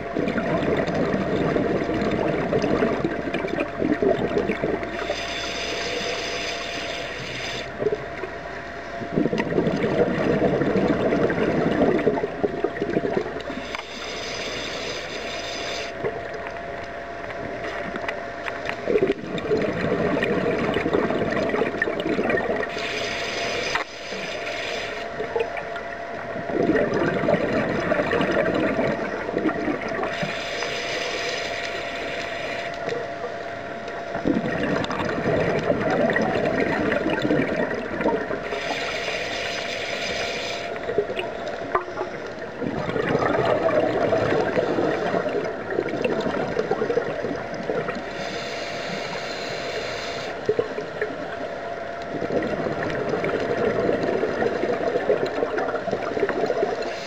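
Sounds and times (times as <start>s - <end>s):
exhaled air bubbling: 0.0s - 57.0s
regulator hissing inhale: 4.9s - 7.7s, 13.5s - 16.1s, 22.7s - 25.2s, 30.1s - 32.9s, 38.4s - 40.9s, 48.0s - 50.5s, 56.7s - 57.0s.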